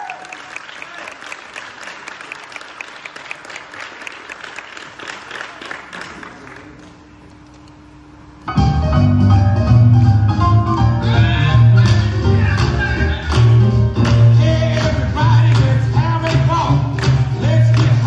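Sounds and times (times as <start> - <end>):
audience applauding: 0.0 - 7.0, 11.8 - 18.0.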